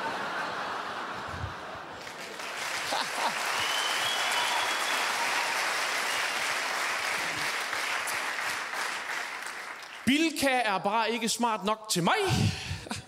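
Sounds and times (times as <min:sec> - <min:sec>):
audience applauding: 0:01.1 - 0:10.1.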